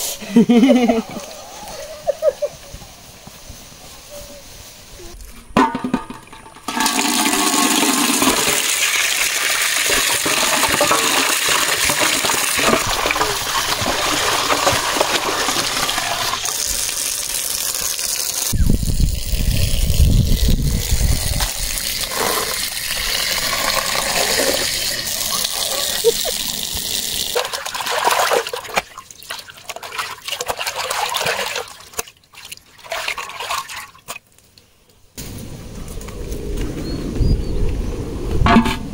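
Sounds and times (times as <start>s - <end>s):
water splashing: 6.0s - 18.5s, 19.2s - 34.3s
water gushing into metal pot: 6.6s - 34.1s
low rumble: 35.2s - 38.9s.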